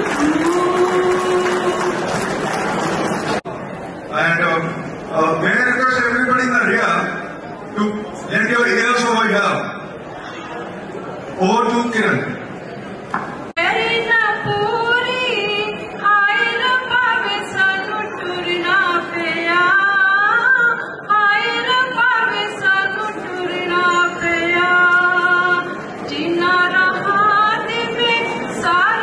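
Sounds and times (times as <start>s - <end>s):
woman singing unaccompanied: 0.0s - 2.2s, 13.6s - 29.0s.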